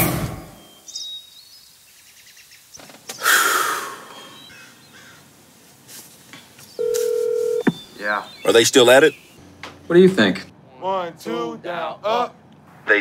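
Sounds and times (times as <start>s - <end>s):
outdoor hush: 0.0s - 13.0s
bird chirps: 0.6s - 5.2s, 7.6s - 9.5s
man sighing heavily: 3.2s - 4.1s.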